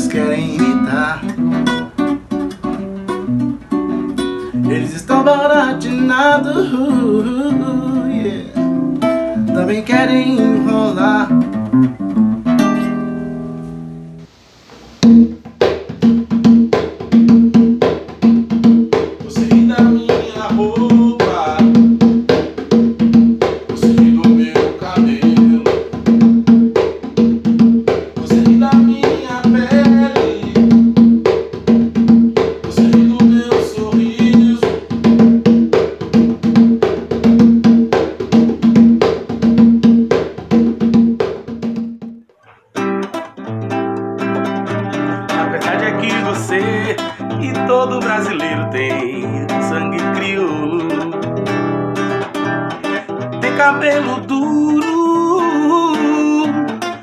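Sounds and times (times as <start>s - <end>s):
low pitched drum beat: 15.0s - 42.2s
hand percussion rhythm: 15.0s - 43.0s, 44.4s - 50.4s.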